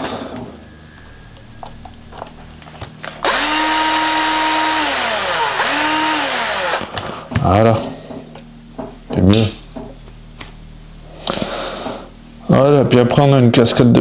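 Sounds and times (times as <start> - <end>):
power screwdriver motor whine: 3.0 - 7.0.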